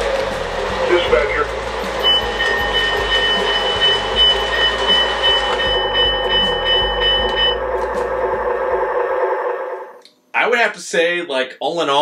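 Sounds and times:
model locomotive diesel rumble: 0.0s - 9.9s
pulsing bell ring: 1.8s - 8.7s.

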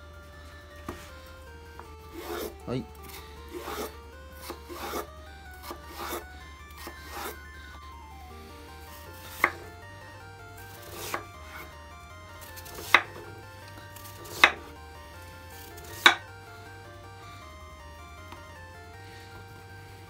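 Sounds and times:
knife cutting radish on wooden board: 9.2s - 9.7s, 10.8s - 11.6s, 12.6s - 13.2s, 14.0s - 14.7s, 16.0s - 16.2s.

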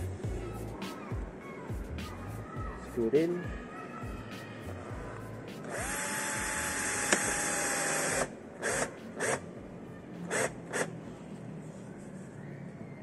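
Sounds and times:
cordless drill driving screw: 5.7s - 9.4s
drill click: 5.7s - 9.4s.

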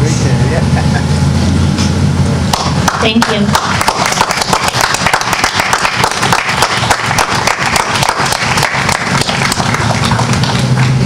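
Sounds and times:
crowd applauding: 2.5s - 11.0s.

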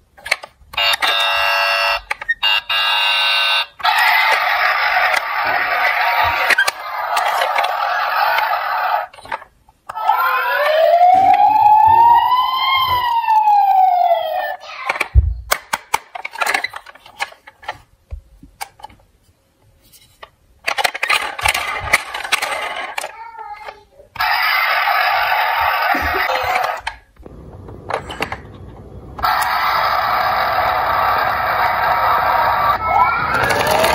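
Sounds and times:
toy siren wailing: 0.8s - 9.0s, 9.9s - 14.6s, 24.2s - 26.8s, 29.2s - 33.9s
thump: 15.2s - 15.5s.

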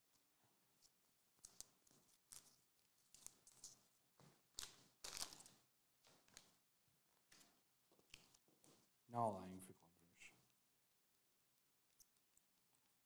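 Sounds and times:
trading cards rustling: 4.6s - 5.5s.

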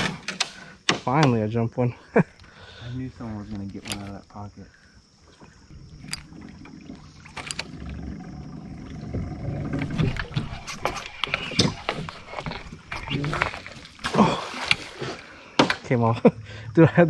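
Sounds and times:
light water splashes: 2.4s - 17.0s.

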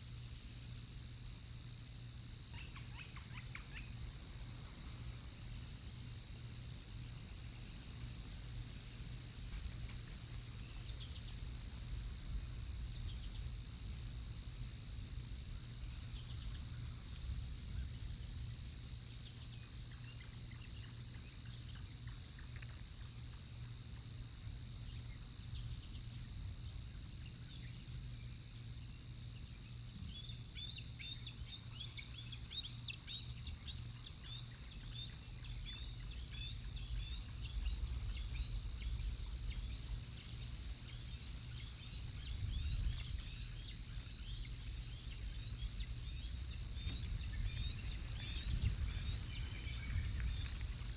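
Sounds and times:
steady low rumble: 35.4s - 50.9s.

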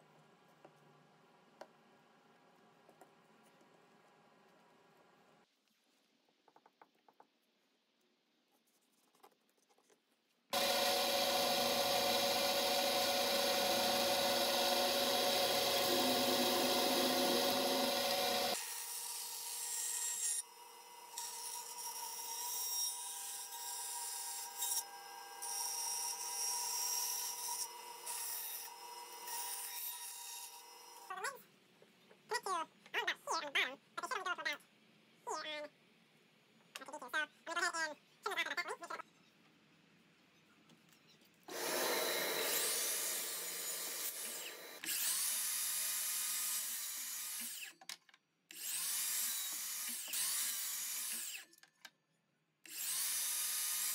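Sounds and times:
bandsaw cutting wood: 10.5s - 20.4s, 41.5s - 47.7s
loud power tool running: 10.6s - 18.6s, 41.5s - 44.9s.

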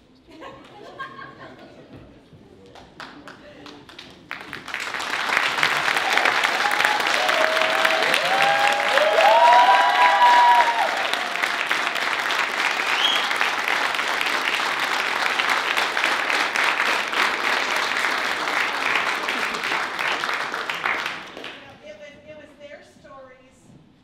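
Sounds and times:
audience applauding: 3.0s - 21.8s
person whooping: 6.1s - 12.0s.

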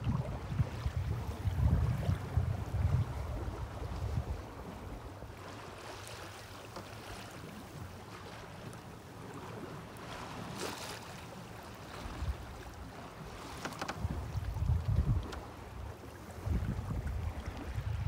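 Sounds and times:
wind gusting on microphone: 0.0s - 5.0s, 14.0s - 15.4s, 16.3s - 18.0s
water washing against a hull: 0.0s - 18.0s.

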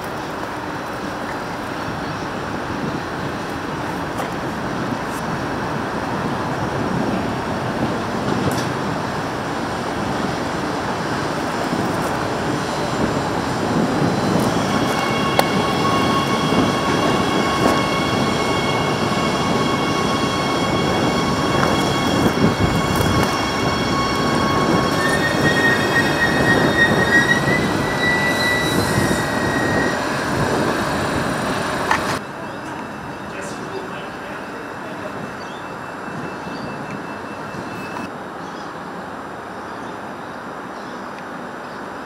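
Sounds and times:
train wheels rumbling on rail: 0.0s - 38.2s
high multi-tone whine: 12.2s - 38.1s.

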